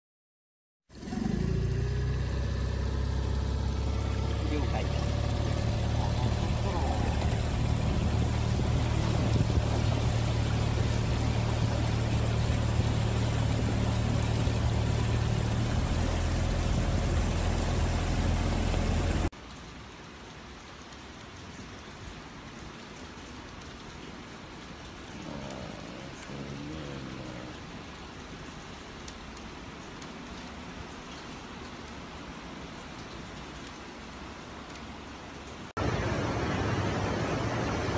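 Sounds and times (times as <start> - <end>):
vehicle engine humming: 0.9 - 19.3, 35.8 - 37.9
rain: 0.9 - 37.9.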